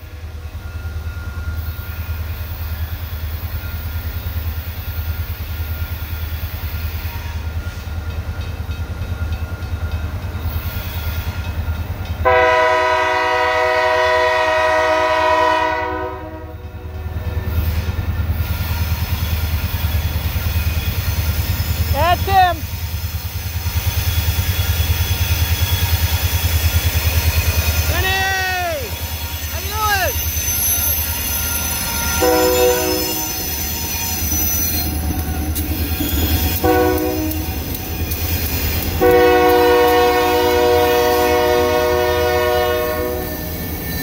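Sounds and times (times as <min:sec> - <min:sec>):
diesel locomotive engine rumble: 0:00.0 - 0:44.0
train air horn blast: 0:12.2 - 0:16.6, 0:31.9 - 0:33.5, 0:36.5 - 0:37.5, 0:39.0 - 0:43.4.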